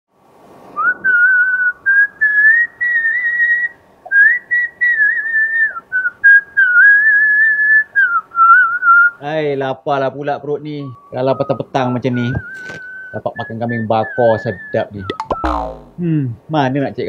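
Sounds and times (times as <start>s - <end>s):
man whistling a tune: 0.8s - 9.2s, 10.8s - 15.6s.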